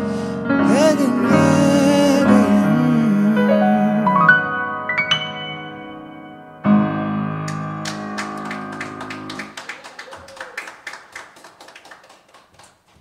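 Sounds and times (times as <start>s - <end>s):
grand piano chord: 0.0s - 9.5s
audience clapping: 7.5s - 13.0s.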